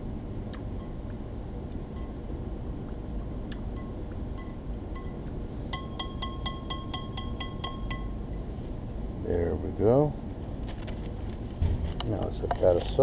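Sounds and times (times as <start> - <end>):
steady low hum: 0.0 - 13.0
chopstick tapping dish: 5.8 - 8.1.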